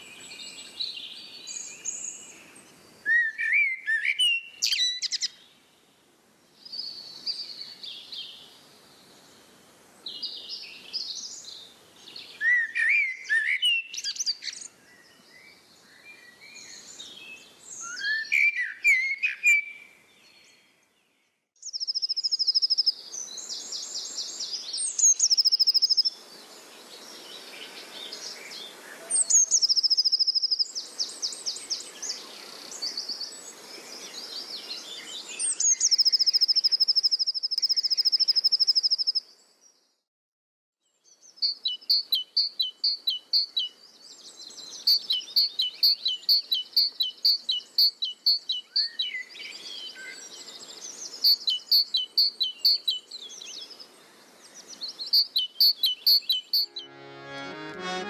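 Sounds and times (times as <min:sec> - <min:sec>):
bird chirps and whistles: 0:03.1 - 0:05.3, 0:17.8 - 0:19.8, 0:25.0 - 0:26.0, 0:35.5 - 0:39.2, 0:51.2 - 0:53.0, 0:55.1 - 0:56.9
high rapid bird trill: 0:55.2 - 0:58.0.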